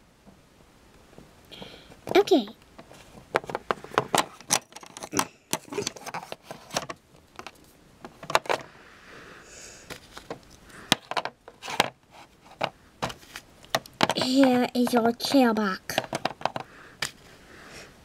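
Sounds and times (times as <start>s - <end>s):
soft rustle: 2.8s - 4.0s
plastic toys clicking and clattering: 3.4s - 8.7s, 9.9s - 17.2s.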